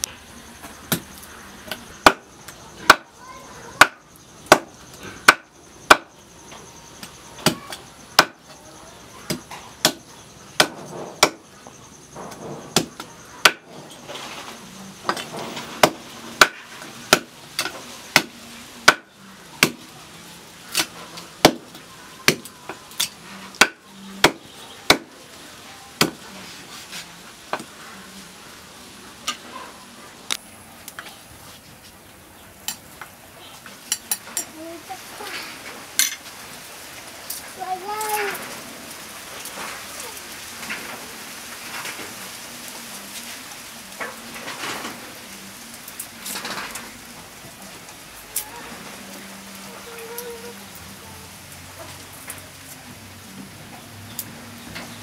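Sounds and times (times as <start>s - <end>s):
cleaver chopping on wooden board: 2.0s - 2.2s, 5.3s - 6.1s, 8.2s - 8.4s, 10.6s - 11.4s, 15.8s - 19.8s, 23.6s - 25.1s, 26.0s - 26.2s.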